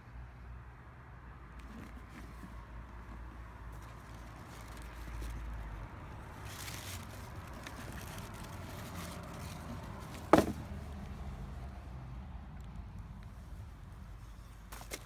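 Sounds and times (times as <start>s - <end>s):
cardboard box being handled: 1.6s - 5.5s, 6.2s - 10.8s
tissue paper rustling: 6.3s - 10.5s.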